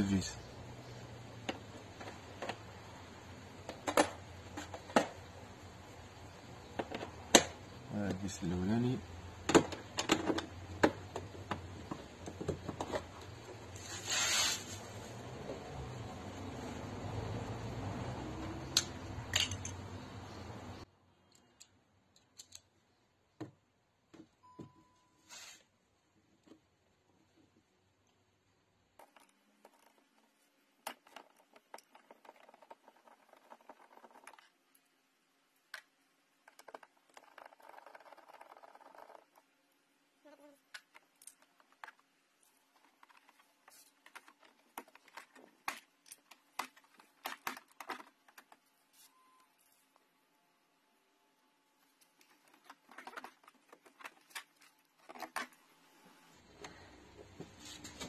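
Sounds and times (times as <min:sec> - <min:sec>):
short hiss: 0:13.8 - 0:14.8, 0:25.3 - 0:25.7.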